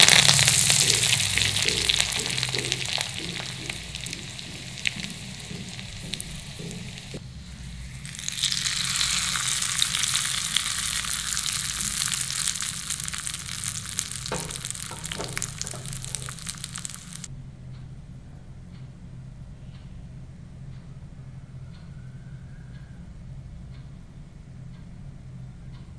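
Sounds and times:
chillies sizzling in hot oil: 0.0 - 17.3
soft knocks: 2.3 - 7.2, 14.2 - 16.5.

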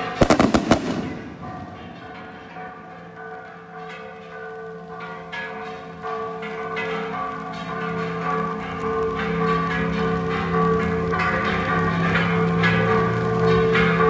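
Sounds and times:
church bells ringing: 0.0 - 14.0
fireworks bursting: 0.2 - 2.7.

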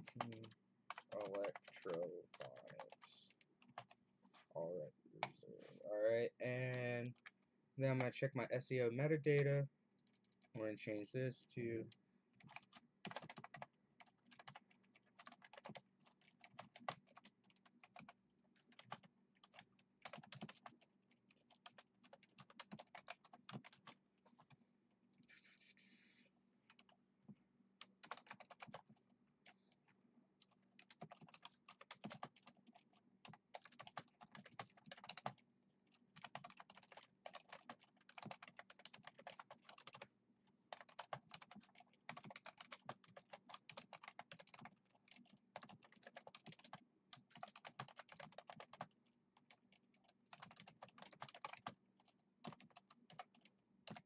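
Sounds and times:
typing on computer keyboard: 0.0 - 4.0, 12.4 - 24.6, 26.7 - 27.0, 27.8 - 29.6, 30.4 - 40.1, 40.7 - 54.0.

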